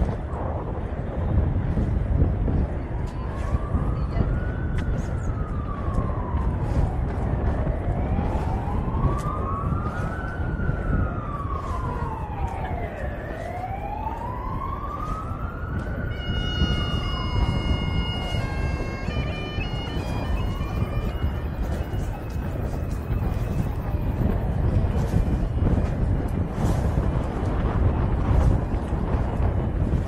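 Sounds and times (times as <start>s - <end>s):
emergency vehicle siren wailing: 0.0s - 30.0s
steady low rumble: 0.0s - 30.0s
bagpipes droning: 16.1s - 23.1s.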